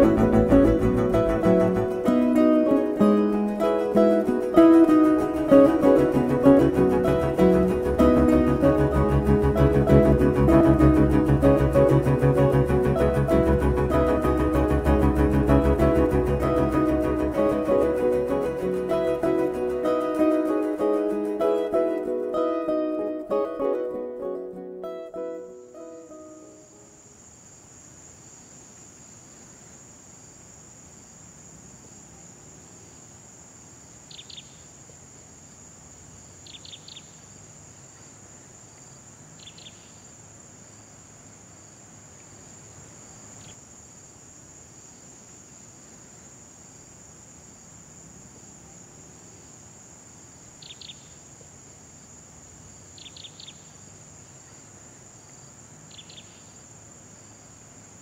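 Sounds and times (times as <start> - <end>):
insects droning: 0.0 - 58.0
bird chirping: 34.1 - 34.6, 36.4 - 37.2, 39.4 - 40.0, 50.6 - 51.2, 53.0 - 53.8, 55.9 - 56.6.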